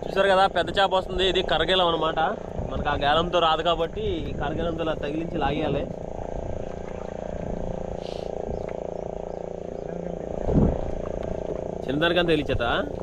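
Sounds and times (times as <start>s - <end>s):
boat motor idling: 0.0s - 13.0s.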